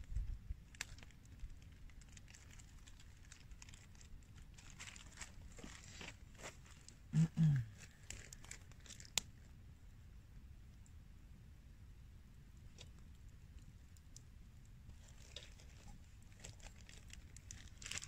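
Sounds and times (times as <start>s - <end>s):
plastic bag crinkling: 0.7s - 6.9s, 7.8s - 9.1s, 15.0s - 18.0s.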